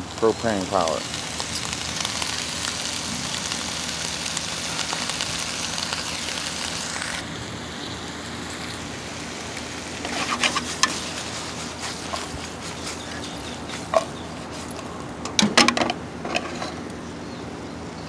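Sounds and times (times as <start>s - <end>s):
vegetables sizzling in a pan: 0.0s - 14.9s
pan clattering on grill: 10.0s - 11.2s, 11.8s - 16.9s.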